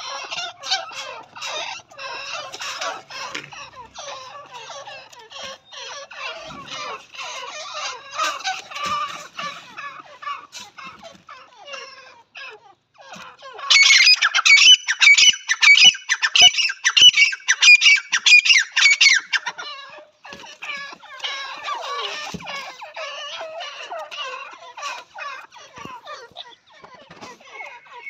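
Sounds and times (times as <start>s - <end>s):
birds calling in squeaky notes: 0.0s - 12.2s, 13.0s - 28.0s
birds chattering softly: 0.0s - 28.0s.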